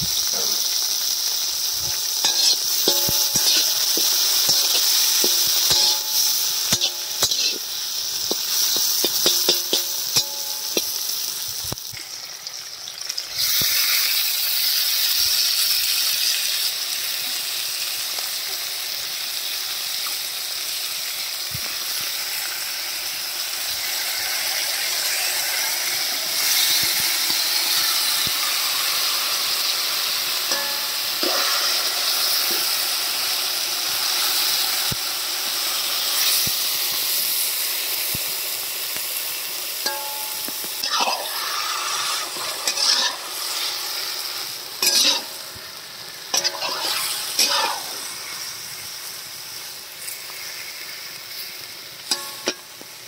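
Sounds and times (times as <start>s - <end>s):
loud sizzle of chicken frying: 0.0s - 53.0s
metal spatula scraping a wok: 1.8s - 11.4s, 30.5s - 32.8s, 39.8s - 43.9s, 44.8s - 45.4s, 46.3s - 48.4s.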